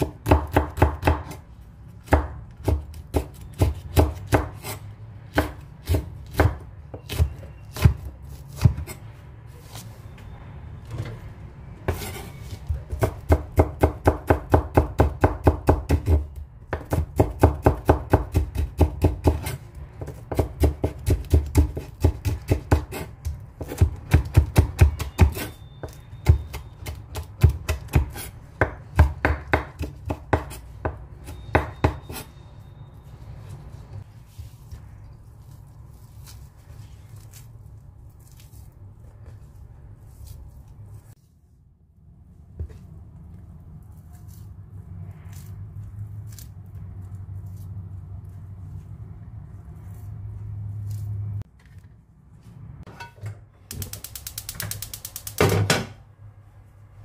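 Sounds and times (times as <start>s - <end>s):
knife chopping on wooden board: 0.0s - 1.4s, 2.0s - 9.0s, 12.9s - 25.5s, 26.2s - 32.2s.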